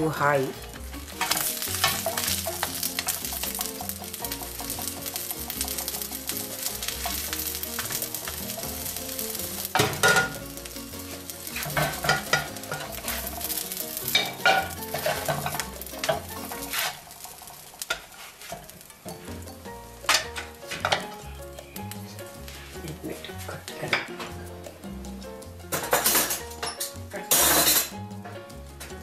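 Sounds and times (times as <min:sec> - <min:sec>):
food sizzling in oil: 0:00.0 - 0:29.0
metal spatula scraping pan: 0:01.1 - 0:06.1, 0:11.0 - 0:21.1.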